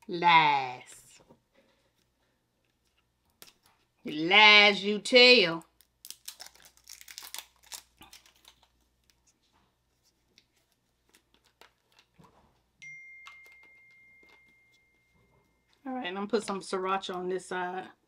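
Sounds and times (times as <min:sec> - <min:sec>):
high ringing tone: 0:12.8 - 0:15.9.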